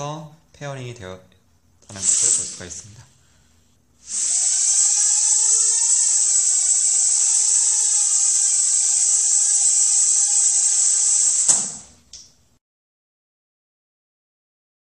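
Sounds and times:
quadcopter propellers whining: 4.1s - 11.8s.

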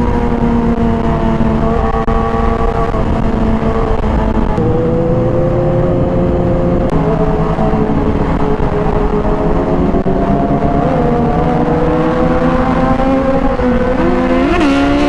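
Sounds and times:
low wind rumble: 0.0s - 15.0s.

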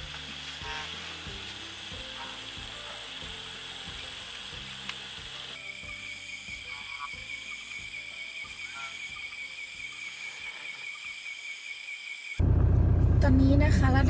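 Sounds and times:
frogs croaking: 0.0s - 12.4s
insects droning: 0.0s - 12.4s.

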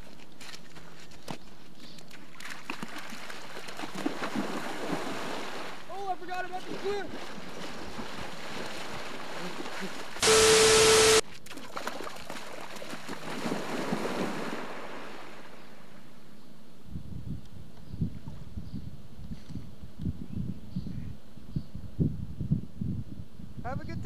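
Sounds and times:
person wading through water: 2.1s - 5.9s, 6.5s - 10.2s, 11.3s - 15.9s
hiss with steady tone: 10.2s - 11.2s.

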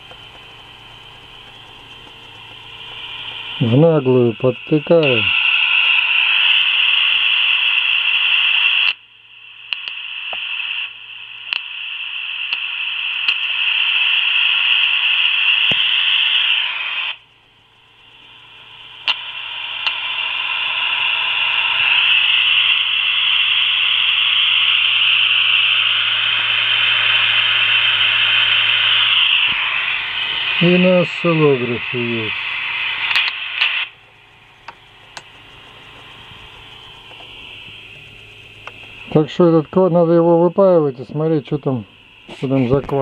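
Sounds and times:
faint low hum: 0.0s - 5.4s, 17.1s - 43.0s
radio receiver hiss: 0.0s - 43.0s
sharp clicks: 9.7s - 10.4s, 33.0s - 34.0s, 34.6s - 39.0s.

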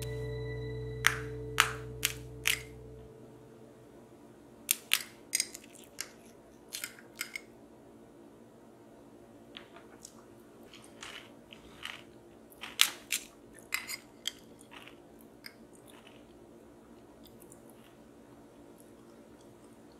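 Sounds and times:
spoon cracking sugar crust: 4.7s - 7.5s.

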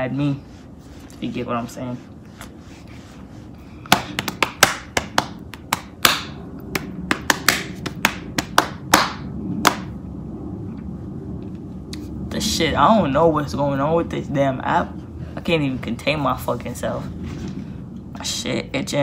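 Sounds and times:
hand claps: 3.9s - 9.9s.

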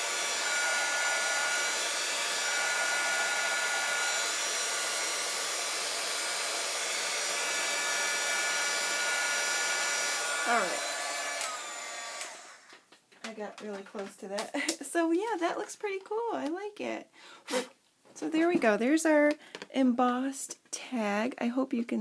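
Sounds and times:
motor whine: 0.0s - 12.7s
heat gun blowing: 0.0s - 12.8s, 17.5s - 17.7s.

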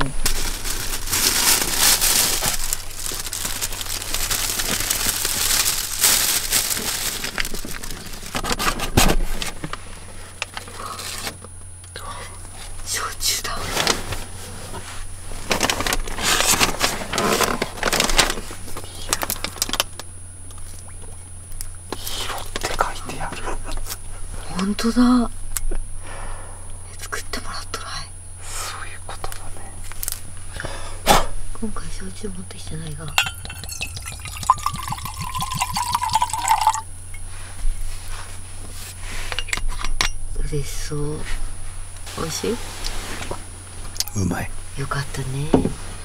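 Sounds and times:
wrapping paper rustling: 0.0s - 9.8s, 15.3s - 19.9s, 33.7s - 36.8s
liquid glugging from a glass bottle: 33.1s - 36.8s.

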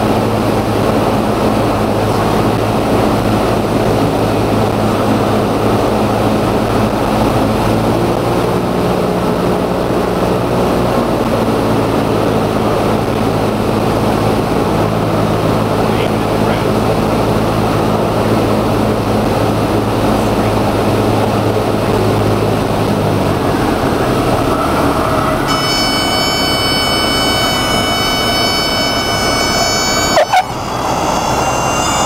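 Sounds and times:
aircraft engine and propeller droning: 0.0s - 32.0s
rushing air: 26.1s - 32.0s.

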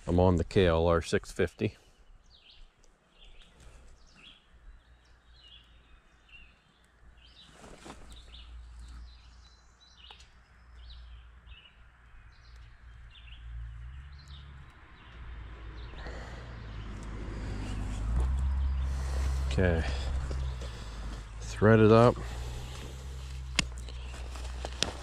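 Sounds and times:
birds chirping: 0.1s - 25.0s
low rumble: 15.3s - 25.0s.

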